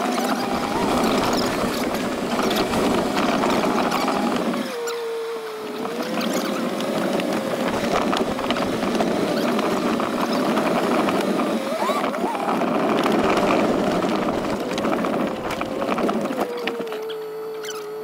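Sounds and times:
wind noise: 0.0s - 4.7s, 7.0s - 16.8s
dirt bike engine running: 0.0s - 4.9s, 5.6s - 16.8s.

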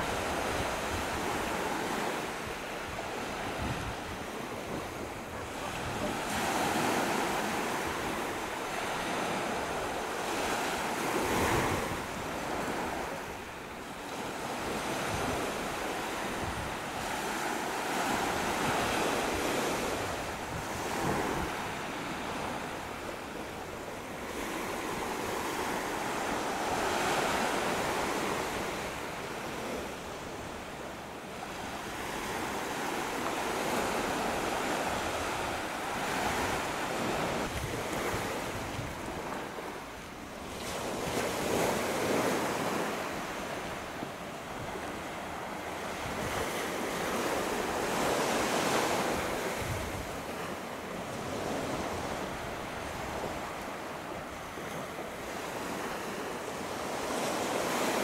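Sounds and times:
sea waves breaking: 0.0s - 58.0s
wind buffeting microphone: 2.6s - 13.4s, 14.3s - 23.8s, 31.6s - 39.7s, 44.4s - 47.2s, 47.8s - 50.4s.

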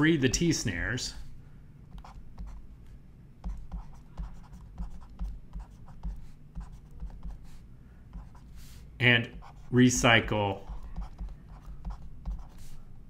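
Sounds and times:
stylus scratching on tablet: 1.9s - 2.6s, 3.4s - 12.9s.

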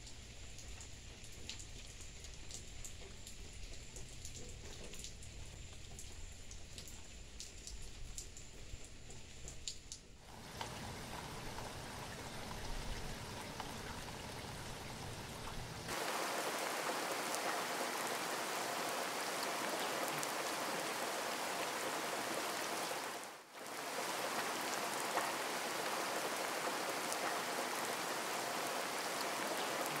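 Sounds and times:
single raindrops ticking: 0.0s - 16.0s
steady rain hiss: 0.0s - 30.0s.

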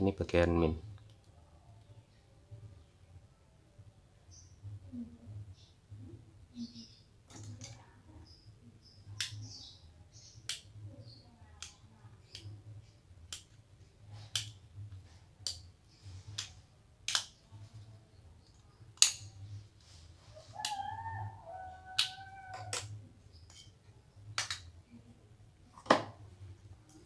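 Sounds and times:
cat meowing: 20.6s - 23.0s.

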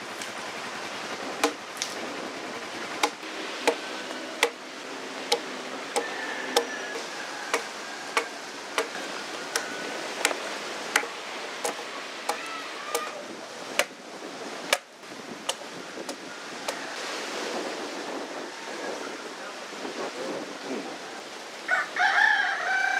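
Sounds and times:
steady background hiss: 0.0s - 22.0s
hatchet chopping wood: 1.4s - 2.0s, 3.0s - 4.6s, 5.3s - 14.0s, 14.7s - 16.2s.

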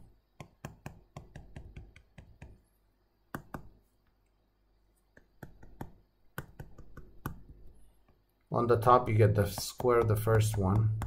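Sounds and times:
stylus tapping on tablet screen: 0.0s - 2.7s, 3.3s - 3.9s, 5.1s - 8.2s, 9.0s - 11.0s.

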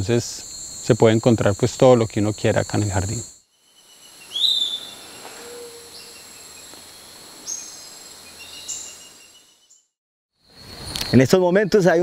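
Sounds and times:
insects shrilling: 0.0s - 9.8s, 10.4s - 11.4s
high bird calls: 3.7s - 9.8s.

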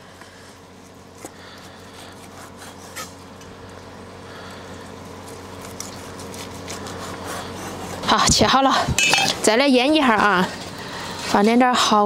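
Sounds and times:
knife sawing through meat: 1.6s - 3.2s, 5.6s - 8.7s.

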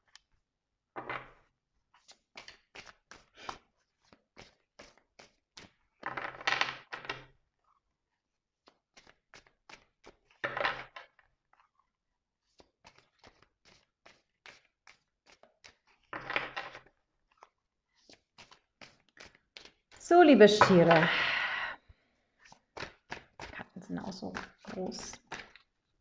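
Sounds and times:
cards being shuffled: 2.0s - 7.0s, 8.6s - 11.7s, 12.4s - 20.0s, 22.4s - 25.7s
rustling runs of cards: 2.0s - 7.0s, 8.6s - 11.7s, 12.4s - 21.0s, 22.3s - 25.8s.

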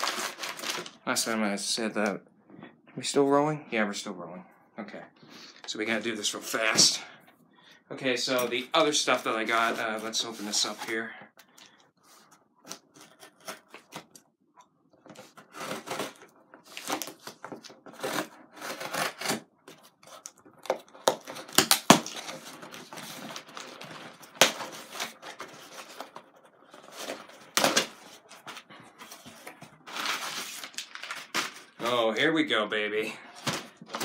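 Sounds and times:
cardboard box tearing open: 15.3s - 19.5s.

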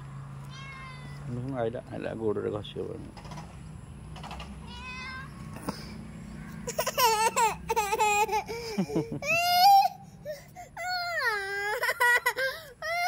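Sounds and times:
cat meowing: 0.5s - 1.3s, 4.6s - 5.6s.

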